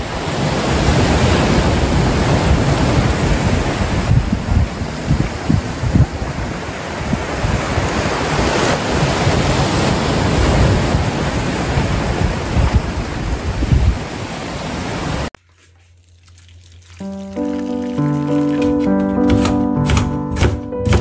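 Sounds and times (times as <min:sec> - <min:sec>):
sea waves breaking on rocks: 0:00.0 - 0:15.3
wind buffeting microphone: 0:00.1 - 0:14.4.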